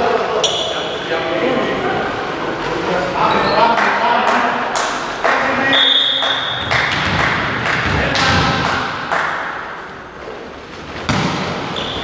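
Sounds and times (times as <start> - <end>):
volleyball hit by hands: 6.7 - 9.5, 11.0 - 11.7.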